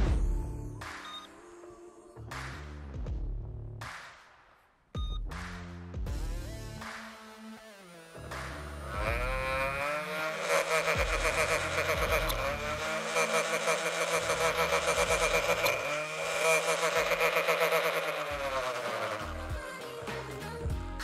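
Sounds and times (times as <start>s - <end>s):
electric motors whining: 8.6s - 19.6s
wheels slipping on ball: 10.4s - 19.5s.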